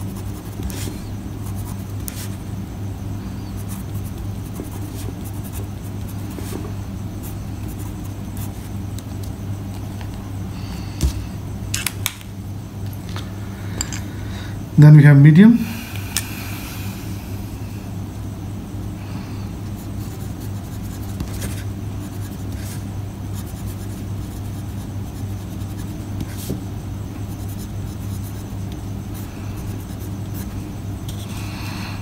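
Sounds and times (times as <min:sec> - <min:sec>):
fountain pen scratching on paper: 0:00.0 - 0:02.4, 0:03.6 - 0:06.6, 0:20.1 - 0:22.8
steady low hum: 0:00.0 - 0:32.0.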